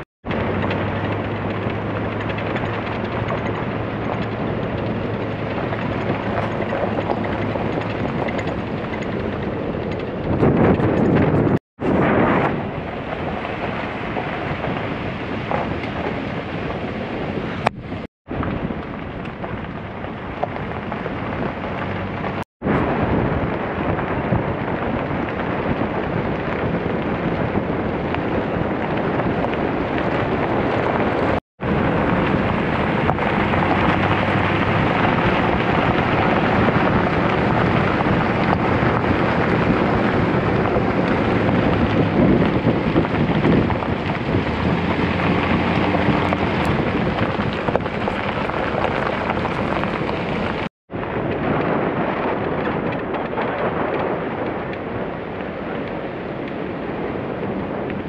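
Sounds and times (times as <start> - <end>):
vehicle driving on gravel: 0.0 - 58.0
wind buffeting microphone: 0.0 - 58.0
tyre noise: 26.6 - 50.7.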